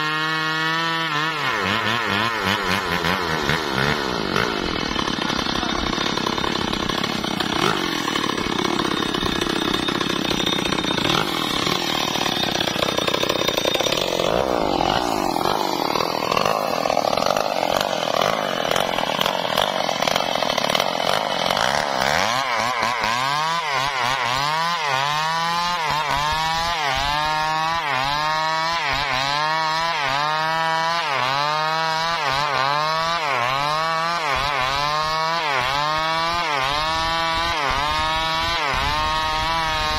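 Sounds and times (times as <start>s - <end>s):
chainsaw cutting logs: 0.0s - 39.9s.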